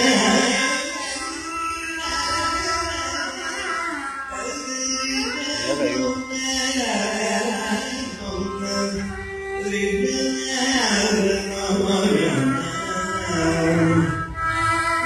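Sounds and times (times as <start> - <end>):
man singing ornamented notes: 0.0 - 14.4
violin: 0.0 - 15.0.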